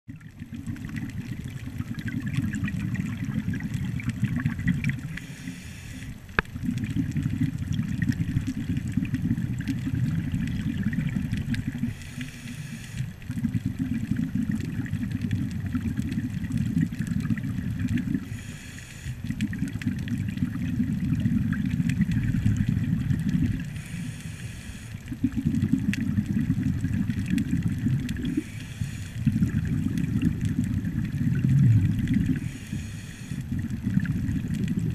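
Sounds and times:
underwater exhaled bubbling: 0.1s - 34.9s
regulator hissing inhalations: 5.2s - 6.2s, 11.9s - 13.1s, 18.2s - 19.2s, 23.7s - 25.0s, 28.3s - 29.2s, 32.4s - 33.4s.

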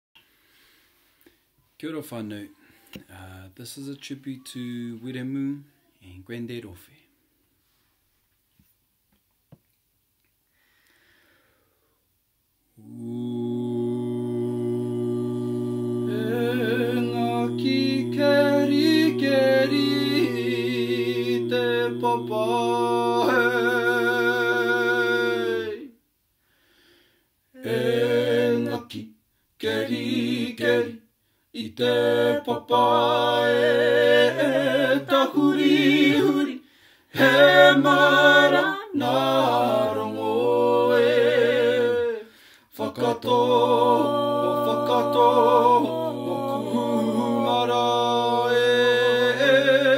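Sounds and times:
group singing with vibrato: 12.7s - 26.0s, 27.5s - 49.9s.

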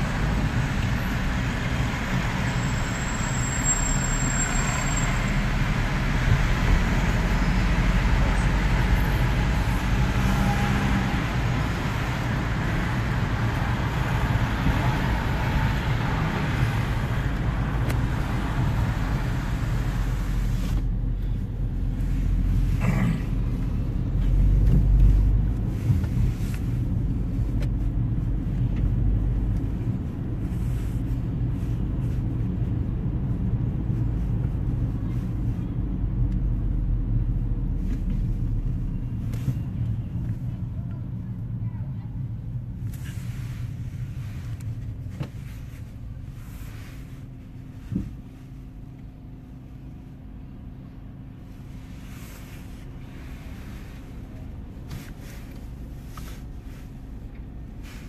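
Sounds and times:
engine and tyre rumble: 0.0s - 58.0s
traffic hiss: 33.3s - 58.0s.

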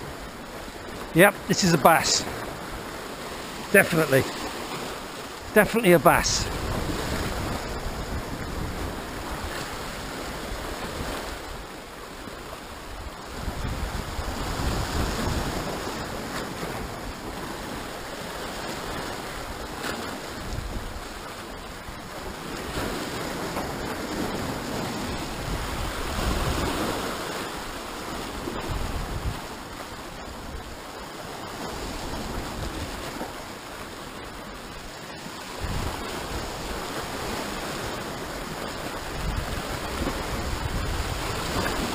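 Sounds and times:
surf breaking over rocks: 0.0s - 11.7s
wind rumbling on microphone: 6.4s - 11.7s, 12.3s - 30.8s, 35.5s - 41.9s.

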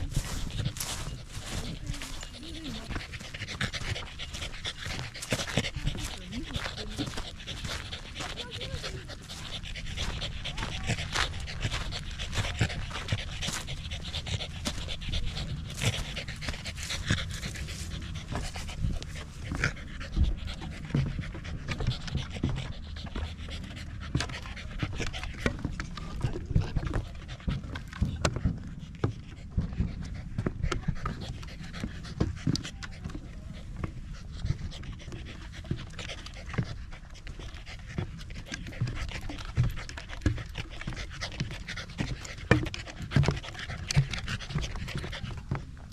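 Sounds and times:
footsteps on gravel: 0.0s - 19.4s
dog panting: 0.0s - 45.9s
footsteps on wooden boardwalk: 0.0s - 45.9s.

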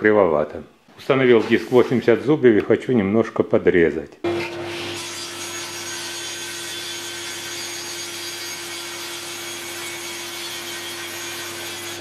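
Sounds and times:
table saw humming: 4.2s - 12.0s.

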